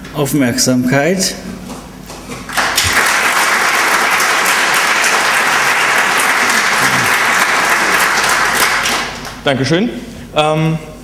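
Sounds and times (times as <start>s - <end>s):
audience applauding: 2.5s - 9.4s.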